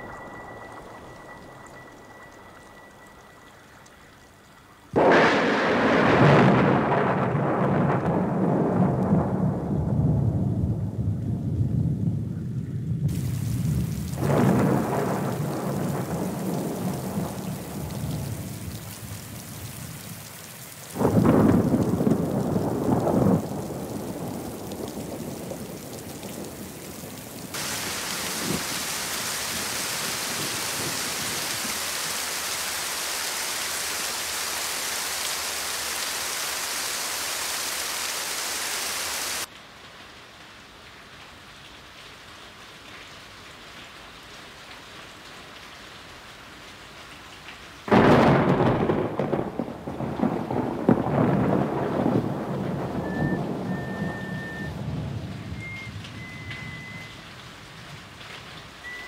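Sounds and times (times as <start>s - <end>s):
rain hissing: 0.0s - 59.0s
thunder rumbling: 4.9s - 32.8s, 47.9s - 57.2s.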